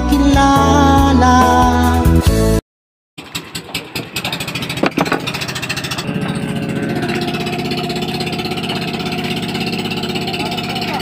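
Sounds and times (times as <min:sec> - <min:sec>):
boat engine chugging: 0:03.2 - 0:11.0.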